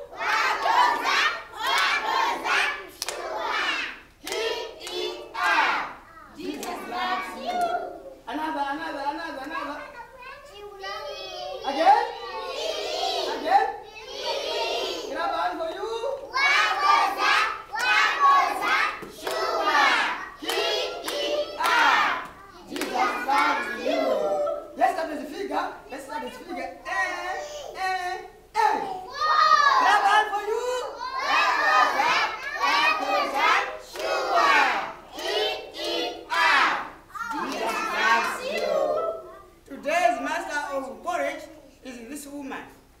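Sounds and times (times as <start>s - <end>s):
children calling out together: 0.0s - 8.2s, 9.4s - 15.2s, 16.0s - 24.8s, 26.9s - 39.7s
hand claps: 2.9s - 3.2s, 4.2s - 5.6s, 18.6s - 19.5s, 20.4s - 23.5s, 33.9s - 34.2s.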